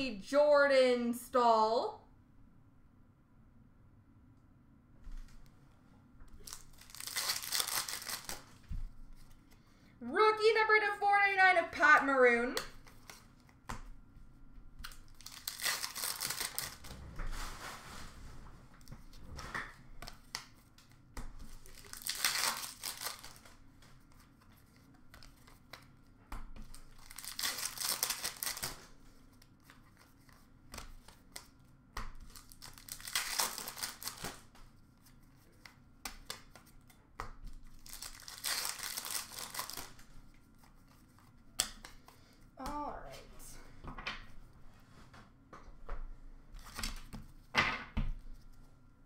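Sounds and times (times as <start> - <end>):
card pack wrappers tearing and crinkling: 6.4 - 8.6, 14.8 - 16.9, 21.4 - 23.6, 26.7 - 31.6, 32.2 - 34.5, 37.7 - 40.1
cards rustling: 6.4 - 9.6, 14.8 - 16.9, 20.0 - 26.0, 26.6 - 42.2.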